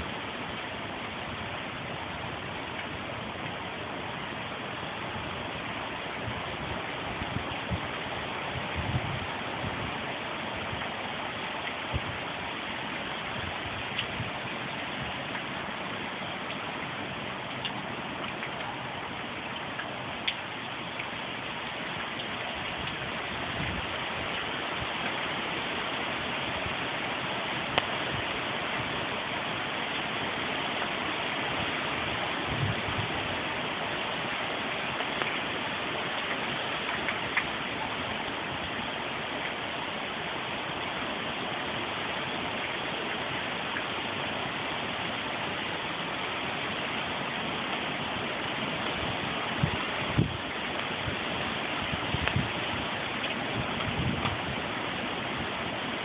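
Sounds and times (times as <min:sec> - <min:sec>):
heavy rain: 0:00.0 - 0:56.0
gusty storm wind: 0:05.0 - 0:10.9, 0:22.6 - 0:29.6, 0:30.2 - 0:34.4, 0:48.8 - 0:56.0.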